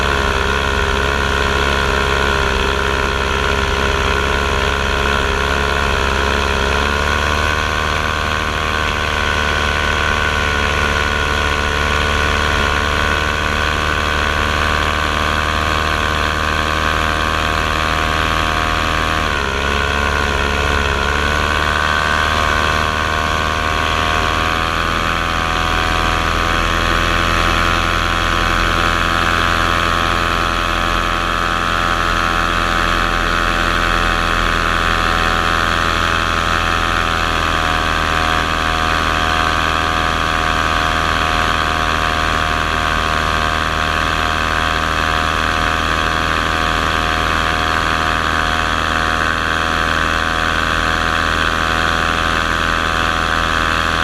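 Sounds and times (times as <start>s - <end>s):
aircraft motors whining: 0.0s - 54.0s.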